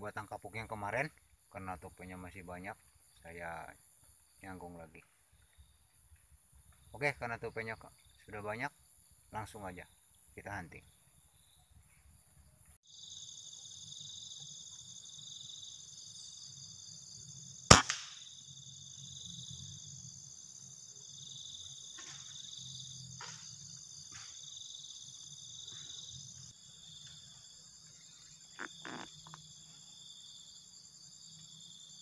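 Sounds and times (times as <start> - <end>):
insect chirring: 12.8 - 32.0
air rifle shot: 17.7 - 18.2.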